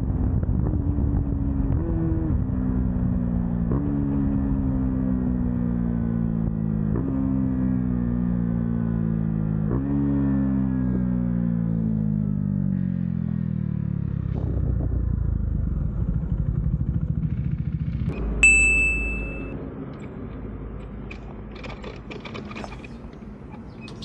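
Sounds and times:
motorcycle engine slowing: 0:10.4 - 0:24.0
sharp ding: 0:18.2 - 0:19.6.

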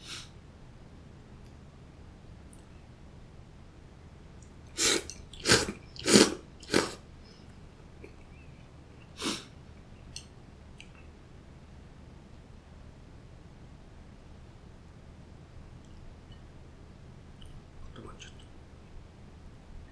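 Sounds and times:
person slurping noodles: 0:04.8 - 0:07.0.

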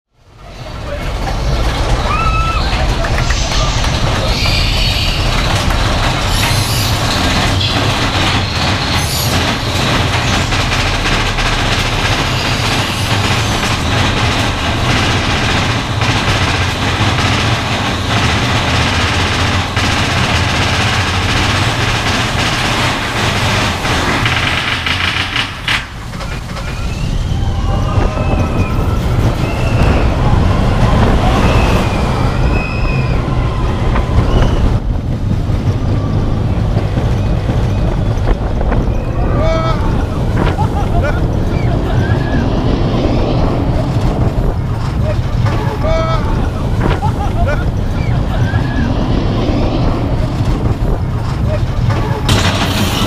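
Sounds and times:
roller coaster rumble and clatter: 0:00.1 - 0:53.0
rising and falling sounds: 0:46.9 - 0:51.2.

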